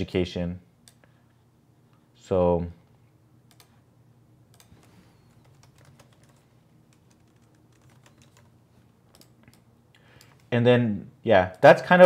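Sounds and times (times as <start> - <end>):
low steady hum: 0.0 - 12.0
typing on keyboard: 4.5 - 8.5, 9.1 - 9.6.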